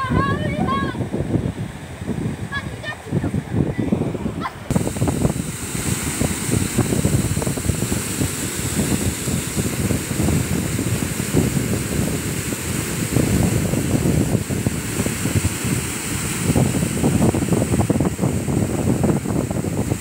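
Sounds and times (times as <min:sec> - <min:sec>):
wind buffeting microphone: 0:00.0 - 0:20.0
waterfall rushing over rocks: 0:04.5 - 0:20.0.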